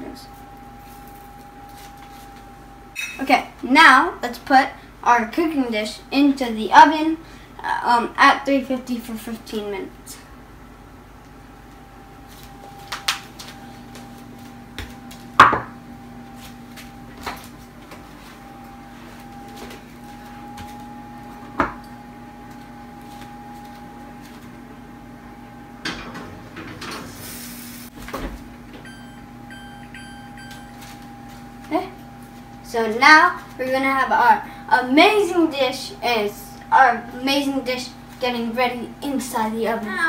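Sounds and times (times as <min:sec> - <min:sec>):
steady hum: 0:00.0 - 0:40.0
oven door and rack clunks: 0:25.8 - 0:27.2
short beeps from oven panel: 0:28.9 - 0:30.8.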